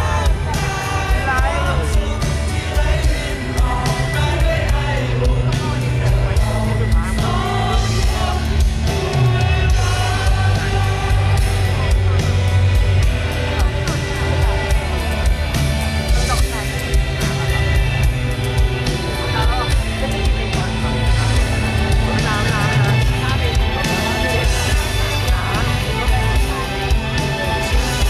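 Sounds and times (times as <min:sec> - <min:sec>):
bass guitar: 0:00.0 - 0:28.0
drum beat: 0:00.0 - 0:28.0
male singer singing: 0:00.0 - 0:28.0.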